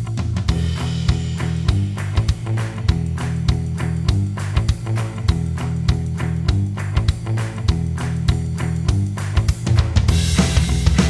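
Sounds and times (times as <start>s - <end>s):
music with drums bass and guitar: 0.0s - 11.0s.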